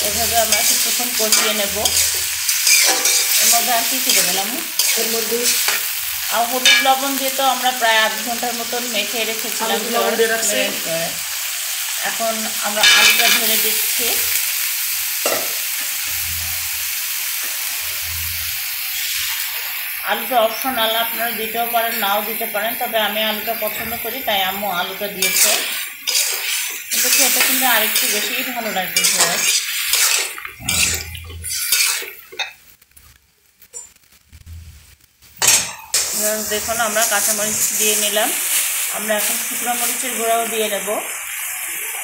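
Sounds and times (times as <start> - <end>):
metal spatula scraping a wok: 0.0 - 6.9, 17.3 - 19.8, 25.2 - 32.6
liver and potatoes sizzling in oil: 0.0 - 42.0.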